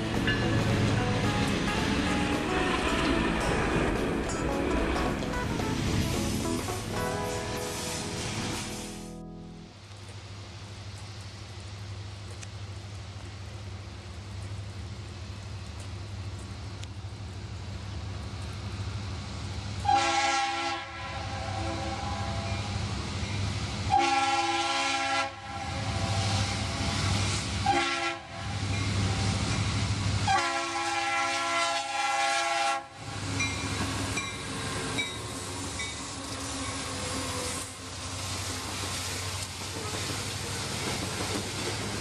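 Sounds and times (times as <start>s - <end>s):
locomotive air horn: 1.9s - 3.6s, 19.8s - 22.7s, 23.9s - 28.6s, 30.2s - 33.0s.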